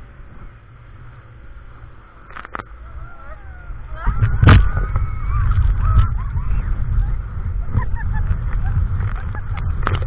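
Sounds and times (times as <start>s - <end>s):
wind and water rushing: 0.0s - 10.0s
faint shrieks of riders: 2.8s - 6.2s.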